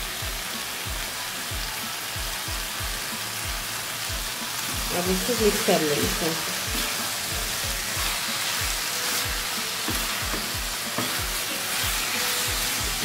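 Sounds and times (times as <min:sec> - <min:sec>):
vegetables sizzling in a pan: 0:00.0 - 0:13.0
wooden spatula stirring: 0:06.5 - 0:13.0.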